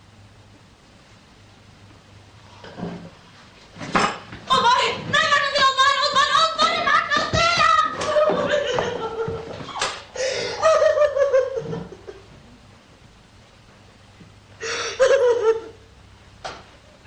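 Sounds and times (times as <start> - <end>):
woman crying and sobbing: 5.6 - 9.5, 10.2 - 11.8.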